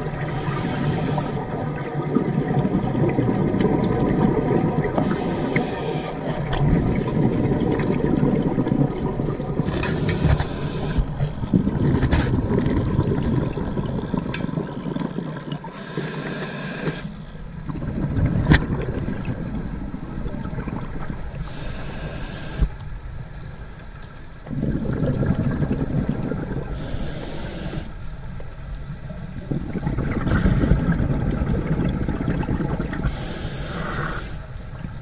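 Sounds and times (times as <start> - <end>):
underwater bubbling: 0.0 - 35.0
diver breathing through regulator: 0.2 - 1.5, 5.0 - 6.4, 9.7 - 11.2, 15.7 - 17.2, 21.4 - 22.8, 26.7 - 28.0, 30.3 - 30.9, 33.0 - 34.5.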